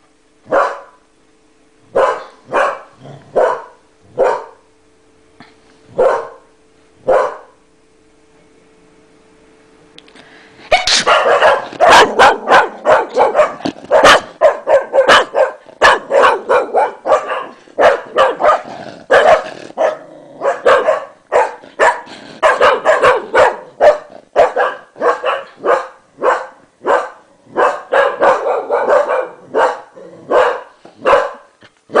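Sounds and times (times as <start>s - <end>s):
dog barking sharply: 0.5s - 1.0s, 2.0s - 4.6s, 6.0s - 6.4s, 7.1s - 7.6s, 10.7s - 32.0s.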